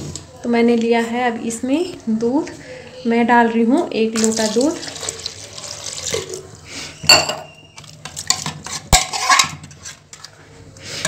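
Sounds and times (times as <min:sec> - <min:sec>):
ladle scraping metal pot: 0:07.0 - 0:10.4.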